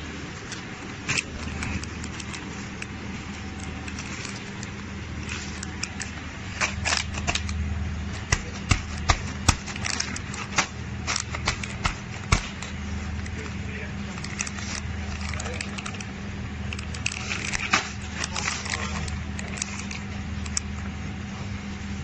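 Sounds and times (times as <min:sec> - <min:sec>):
packing machine hum: 0:00.0 - 0:22.0
plastic snack bag crinkling: 0:08.5 - 0:20.8.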